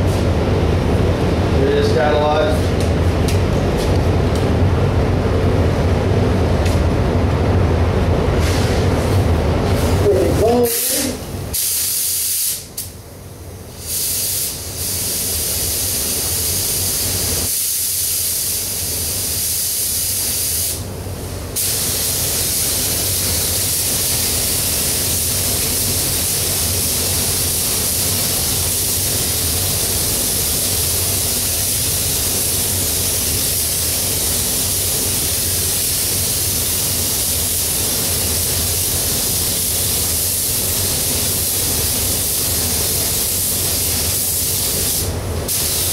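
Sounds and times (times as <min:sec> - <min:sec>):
paint spray gun hissing: 0:10.7 - 0:12.8, 0:13.8 - 0:20.8, 0:21.6 - 0:45.9.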